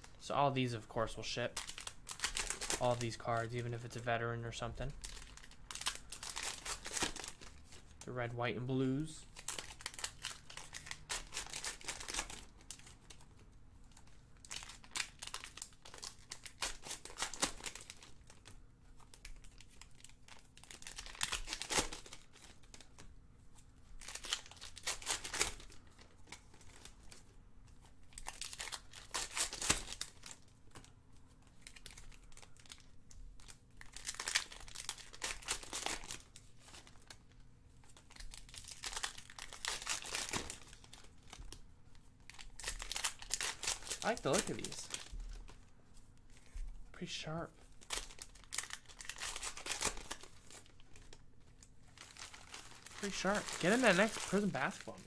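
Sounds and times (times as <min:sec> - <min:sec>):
plastic wrappers crinkling and tearing: 0:00.0 - 0:55.0
cards being handled: 0:37.8 - 0:55.0.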